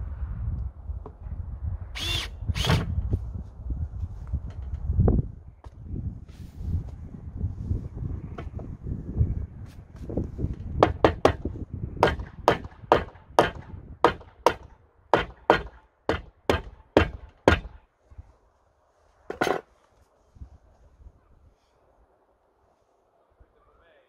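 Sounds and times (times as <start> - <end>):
hammer striking wood: 10.8 - 17.8.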